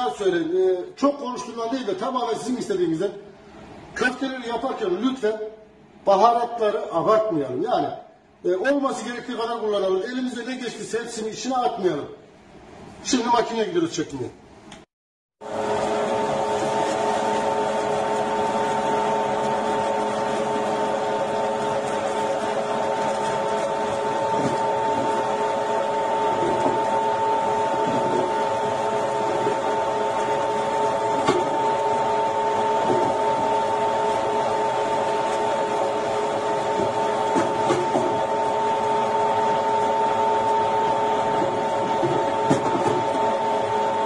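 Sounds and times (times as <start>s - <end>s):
meat grinder motor whine: 15.4s - 44.0s.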